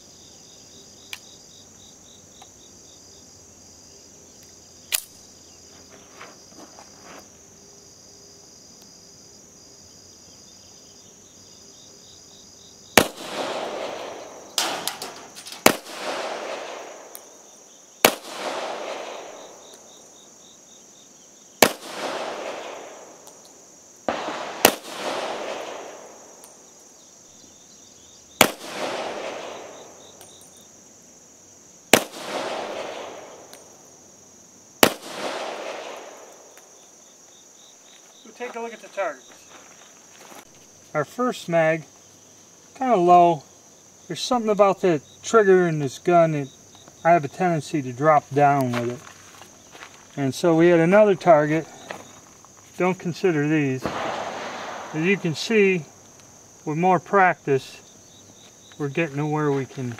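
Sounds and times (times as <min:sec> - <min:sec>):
high insect drone: 0:00.0 - 0:59.9
pistol shots with echo: 0:13.0 - 0:17.3, 0:18.0 - 0:19.6, 0:21.6 - 0:23.2, 0:24.1 - 0:26.4, 0:28.4 - 0:30.0, 0:31.9 - 0:33.6, 0:34.8 - 0:36.5, 0:53.8 - 0:55.9.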